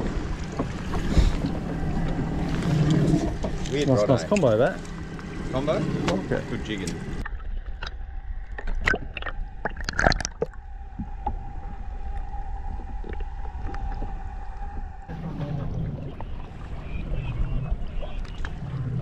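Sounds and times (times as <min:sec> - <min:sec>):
muffled underwater hum: 0:00.0 - 0:19.0
water sloshing against hull: 0:00.0 - 0:19.0.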